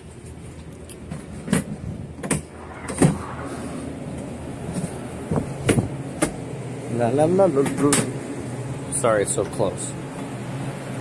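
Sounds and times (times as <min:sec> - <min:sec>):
low machinery hum: 0:00.0 - 0:11.0.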